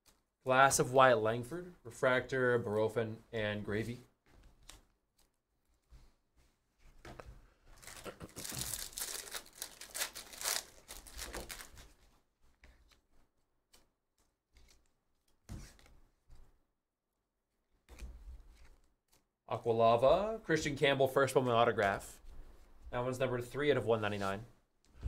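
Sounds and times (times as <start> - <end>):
cards rustling: 7.0 - 16.4, 17.9 - 19.3
foil pack tearing open: 7.8 - 11.9.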